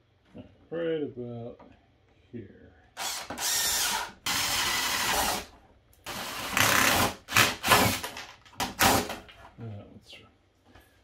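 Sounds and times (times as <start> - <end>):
power drill boring through plastic: 3.0 - 5.5, 6.1 - 9.2.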